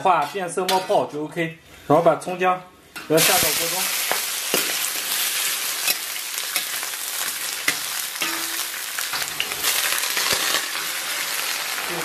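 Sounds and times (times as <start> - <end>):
metal spatula scraping pan: 0.0 - 2.0, 2.8 - 10.8
food sizzling in oil: 2.9 - 12.0.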